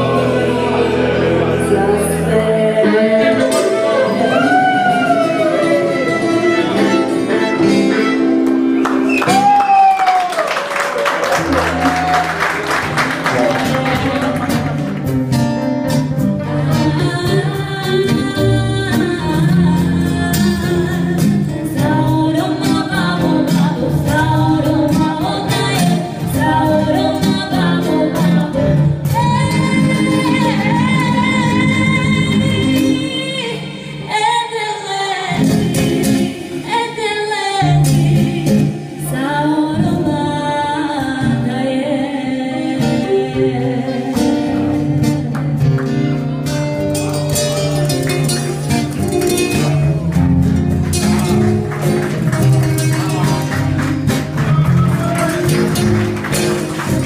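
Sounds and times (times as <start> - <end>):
woman singing: 0.0 - 7.6, 13.4 - 14.7, 16.5 - 45.6
acoustic guitars: 0.0 - 57.0
violin playing: 3.5 - 8.7.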